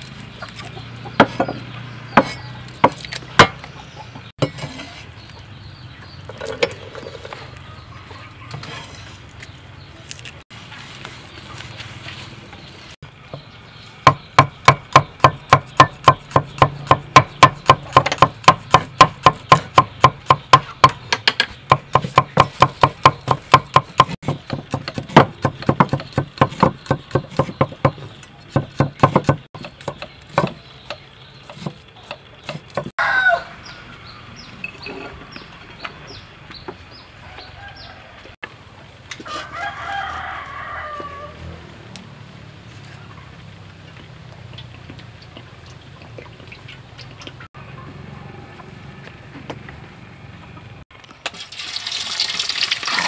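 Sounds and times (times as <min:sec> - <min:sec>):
cleaver chopping on wooden board: 0:14.1 - 0:30.6
rooster crowing: 0:33.0 - 0:33.8, 0:37.2 - 0:38.4, 0:39.2 - 0:41.6.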